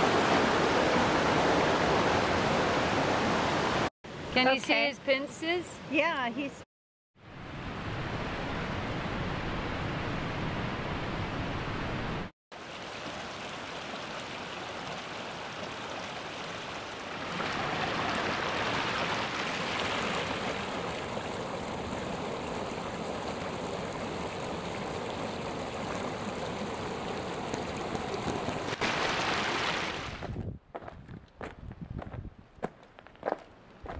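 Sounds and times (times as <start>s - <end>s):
creek rushing over rocks: 0.0s - 3.9s, 12.6s - 30.3s.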